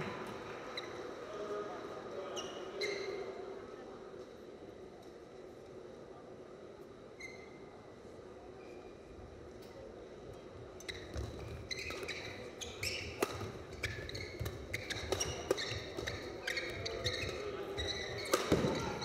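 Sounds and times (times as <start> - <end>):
sneakers squeaking on court: 10.8 - 19.0
racket hitting shuttlecock: 11.2 - 17.4, 18.0 - 19.0.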